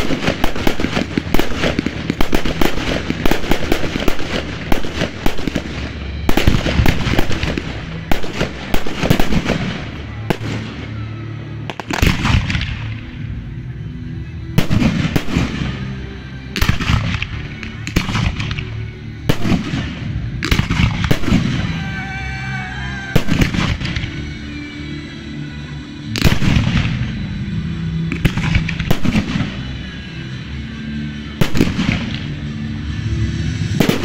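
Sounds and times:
fireworks bursting: 0.0 - 13.3, 14.5 - 34.0
music playing: 0.0 - 34.0.

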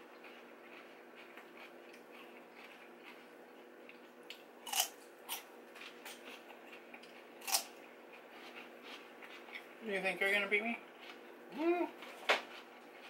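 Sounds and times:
crisp chewing crackles: 0.0 - 13.0
celery crunching: 0.1 - 9.7.

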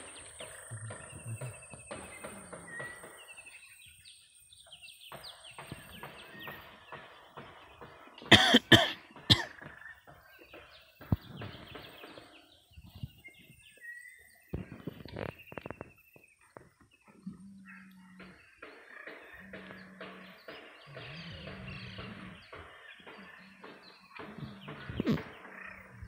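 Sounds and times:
birds chirping: 0.0 - 26.0
person coughing: 8.3 - 9.5.

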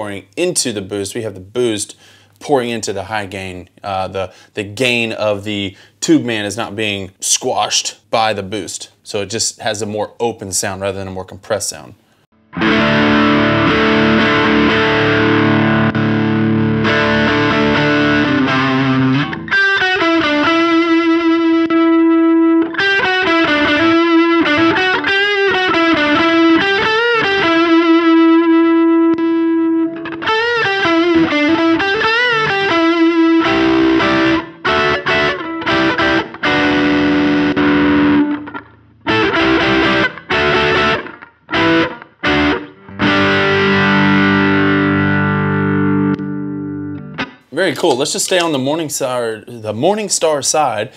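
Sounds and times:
distorted electric guitar: 12.4 - 47.5.

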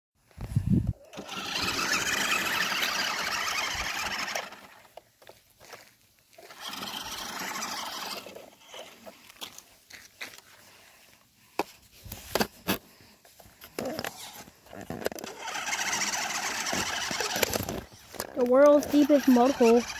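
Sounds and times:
toy car electric motor whining: 1.0 - 5.0, 6.4 - 9.2, 13.7 - 19.9.

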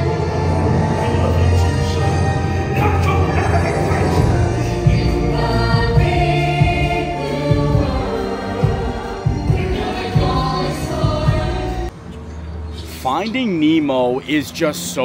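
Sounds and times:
chorus singing: 0.0 - 11.9.

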